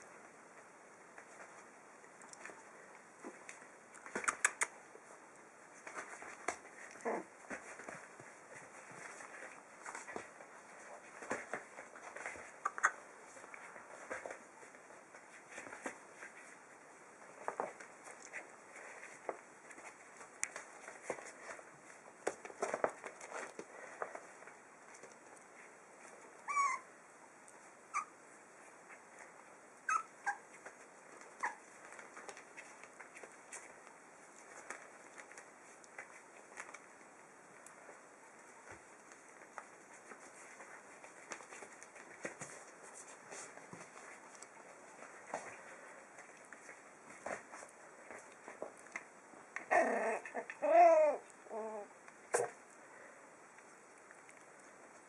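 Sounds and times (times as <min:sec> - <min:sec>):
puppies squealing and yelping: 0:26.4 - 0:26.9, 0:27.9 - 0:28.2, 0:29.8 - 0:30.6.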